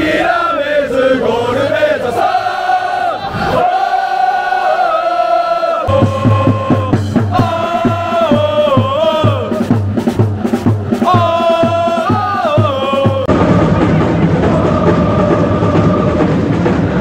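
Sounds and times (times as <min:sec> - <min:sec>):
crowd chanting in unison: 0:00.0 - 0:17.0
steady drumbeat: 0:05.9 - 0:17.0.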